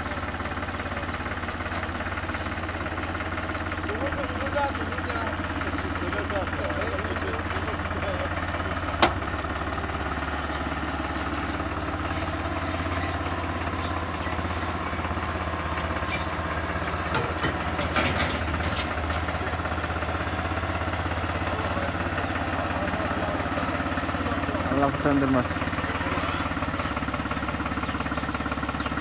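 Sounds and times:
tractor diesel engine idling: 0.0s - 29.0s
metallic clanks from ramps: 15.9s - 19.3s.

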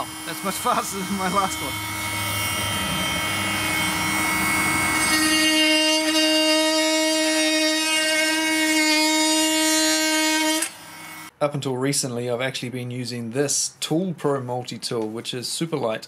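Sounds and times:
oscillating multi-tool cutting wood: 0.0s - 11.3s.

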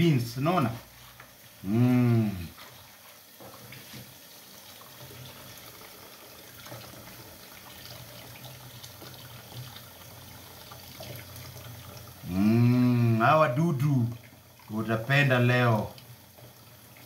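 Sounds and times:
man speaking: 0.0s - 0.8s, 1.6s - 2.5s, 12.3s - 15.9s
tap water running into colander: 0.0s - 17.0s.

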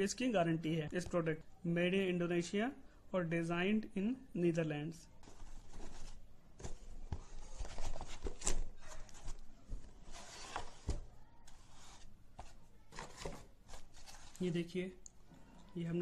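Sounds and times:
cardboard rustling and scraping: 5.2s - 14.6s.

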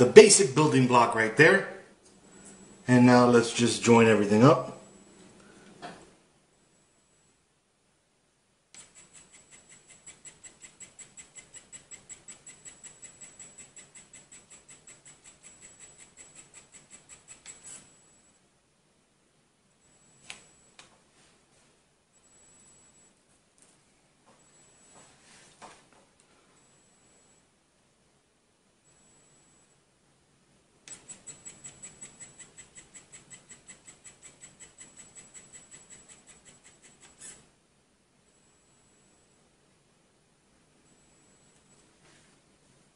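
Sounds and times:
printing pen motor whirring tick: 8.7s - 18.3s, 20.0s - 20.9s, 30.8s - 37.5s
fast even clicking: 8.8s - 17.8s, 30.9s - 37.4s.

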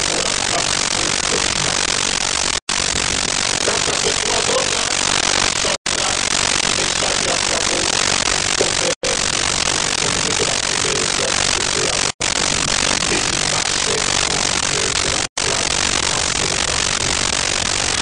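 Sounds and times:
steady recording hiss: 0.0s - 18.0s
faint voice: 3.6s - 9.2s, 9.9s - 12.2s, 13.0s - 18.0s.

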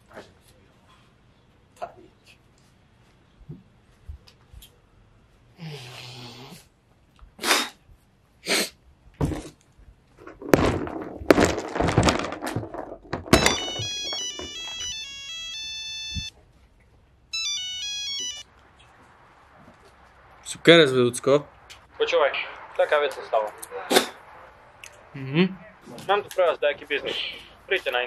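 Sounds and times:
mobile phone ringtone melody: 13.3s - 16.3s, 17.3s - 18.5s.

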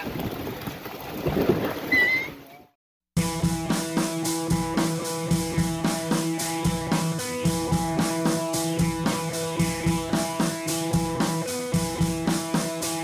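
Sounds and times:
background music with quick beat: 3.2s - 13.0s.

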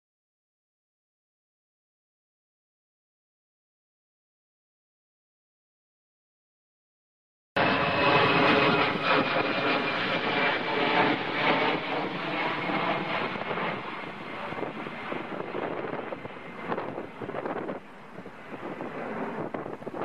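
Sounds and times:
jet airliner engine noise: 7.6s - 20.0s
wind on microphone: 7.6s - 20.0s.

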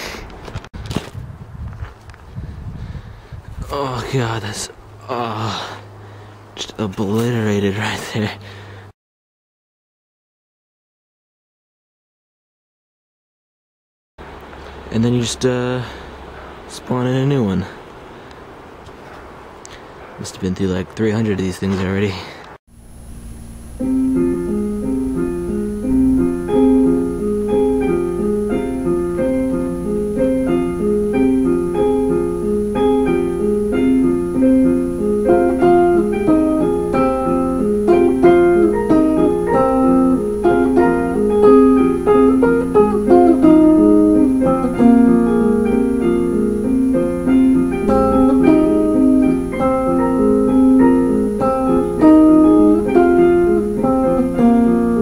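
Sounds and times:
instrumental music with quick notes: 23.4s - 55.0s.

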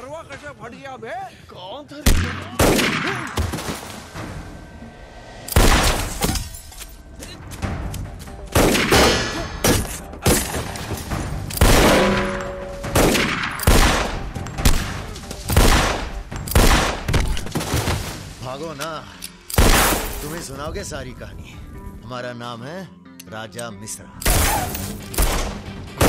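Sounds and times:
film score music: 0.0s - 26.0s
pistol shots with echo: 2.1s - 3.4s, 11.6s - 17.4s.

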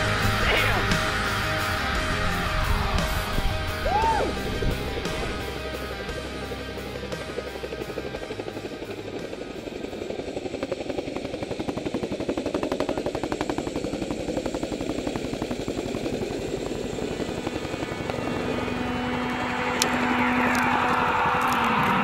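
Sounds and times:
helicopter rotor blades chopping: 0.0s - 22.0s
held musical note: 17.0s - 22.0s.

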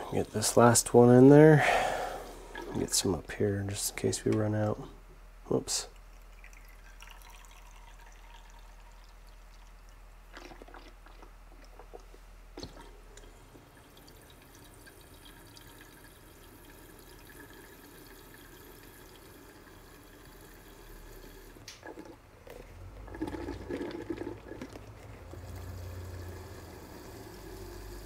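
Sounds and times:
liquid trickling and dripping: 5.9s - 21.8s.

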